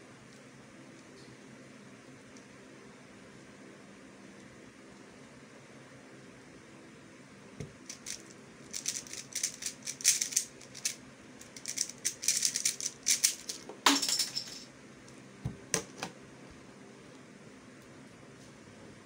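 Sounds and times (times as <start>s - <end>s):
puzzle cube clicking and rattling: 7.8s - 13.7s.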